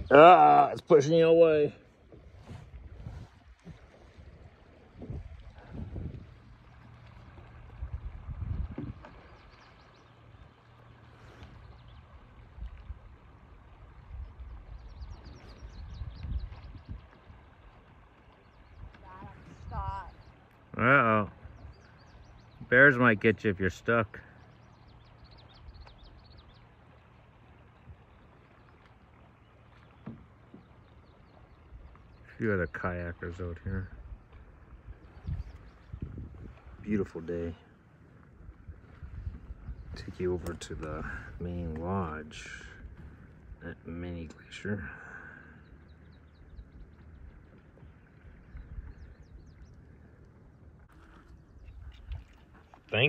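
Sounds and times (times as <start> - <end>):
water lapping and dripping: 0.0 - 53.0.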